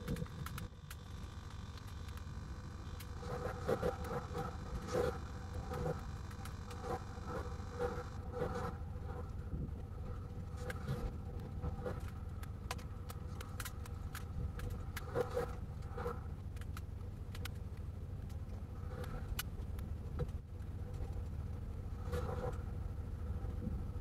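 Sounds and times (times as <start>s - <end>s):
sharp ticks: 0.0s - 8.2s
steady tones: 0.0s - 16.4s
low vehicle hum: 0.0s - 24.0s.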